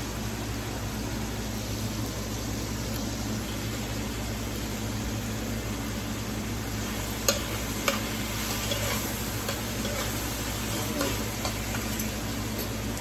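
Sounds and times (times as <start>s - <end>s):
food sizzling in frying pan: 0.0s - 13.0s
metal spoon clicking on pan: 7.3s - 8.0s.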